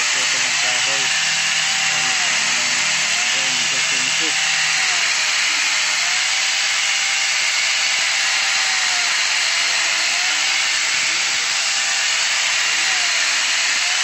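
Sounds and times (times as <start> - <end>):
small chainsaw cutting branches: 0.0 - 14.0.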